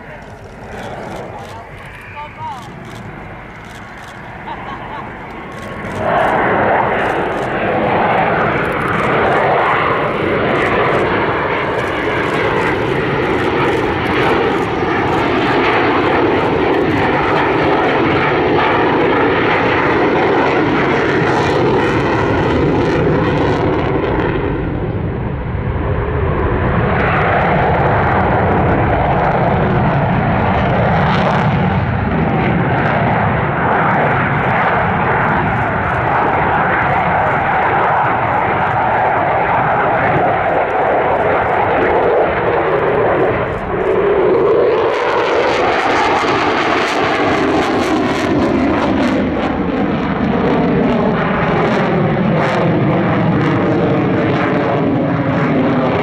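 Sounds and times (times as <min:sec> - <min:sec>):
jet engine roaring overhead: 0:00.0 - 0:56.0.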